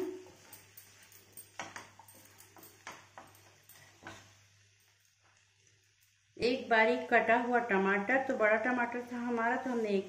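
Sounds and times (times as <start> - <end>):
vegetables hissing in a pan: 0.0 - 10.0.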